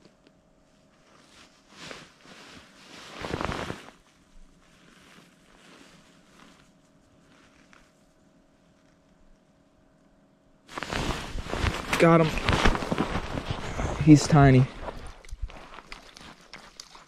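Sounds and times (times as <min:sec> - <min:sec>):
jacket rustling: 0:00.9 - 0:09.3, 0:10.7 - 0:16.8
snow crunching: 0:01.7 - 0:04.1, 0:10.7 - 0:16.6.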